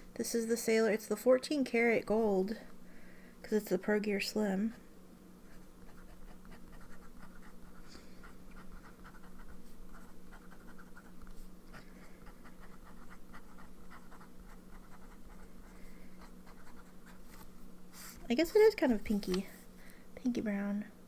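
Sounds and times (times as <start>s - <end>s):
faint steady hum: 0.0s - 21.0s
pen nib scratching paper: 5.5s - 7.9s, 8.5s - 11.4s, 12.2s - 17.4s.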